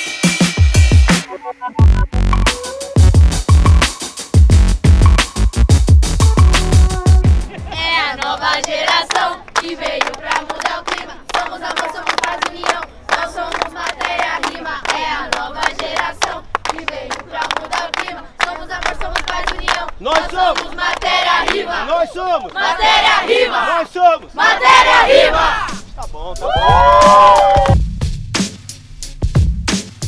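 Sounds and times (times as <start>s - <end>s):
people clapping hands: 6.2s - 22.7s, 26.6s - 27.8s
group chanting: 7.5s - 25.8s.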